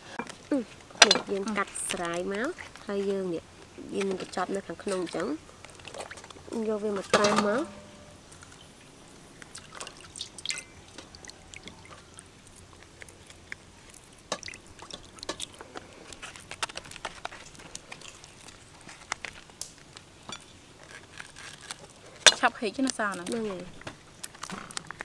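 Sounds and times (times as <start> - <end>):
water dripping and splashing: 0.3 - 7.7, 8.3 - 20.0.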